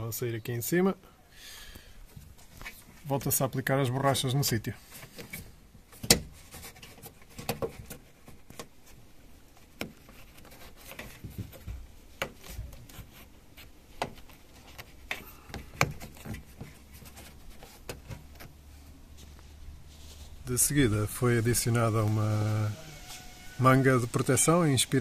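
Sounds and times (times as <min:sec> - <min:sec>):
rubber grommets tapping and clicking: 0:05.0 - 0:19.4.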